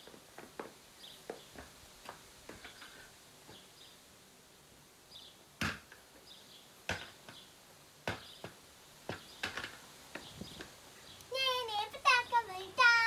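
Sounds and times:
sharp knocks: 5.6 - 6.0.

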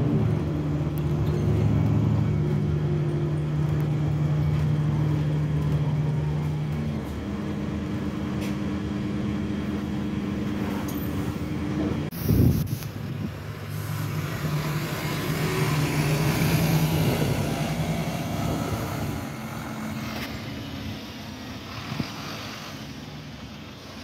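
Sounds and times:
bus engine pulling away: 0.0 - 24.0.

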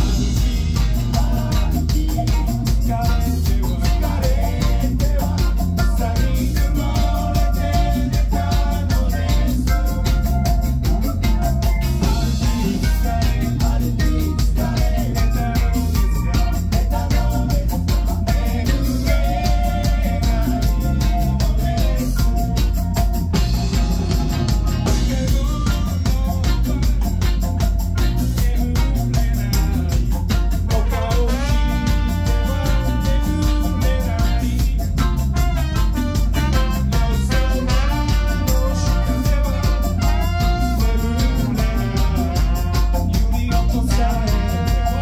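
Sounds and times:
drum kit steady beat: 0.0 - 45.0
electric guitar: 0.0 - 45.0
keyboard: 0.0 - 45.0
trombone held notes: 23.4 - 25.8, 30.7 - 45.0
trumpet held notes: 30.7 - 45.0.

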